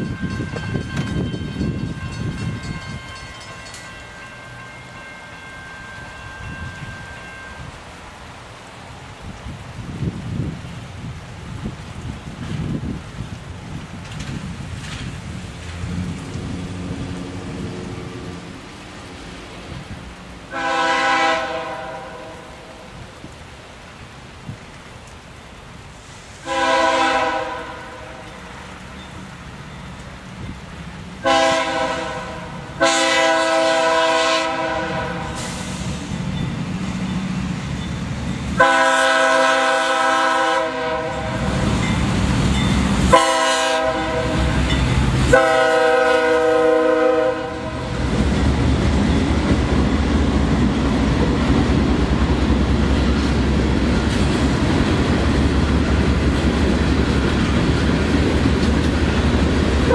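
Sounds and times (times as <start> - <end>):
freight train rumbling past: 0.0 - 59.9
locomotive air horn blasts: 20.5 - 22.8, 26.4 - 28.3, 31.2 - 35.7, 38.6 - 41.6, 43.1 - 44.7, 45.3 - 47.9.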